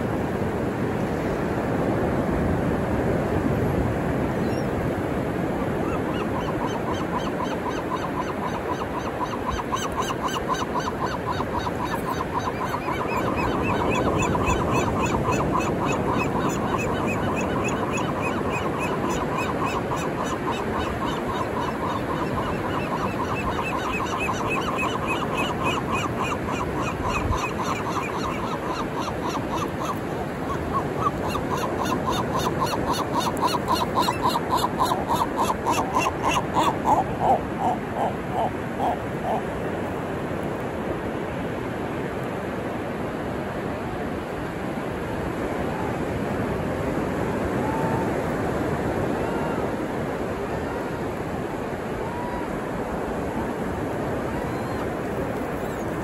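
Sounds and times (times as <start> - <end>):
ocean surf: 0.0 - 56.0
seagulls squawking: 5.8 - 39.4.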